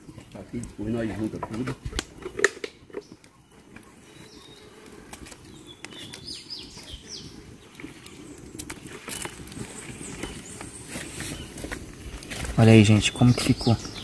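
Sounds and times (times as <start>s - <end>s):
high bird chirps: 2.2s - 8.5s.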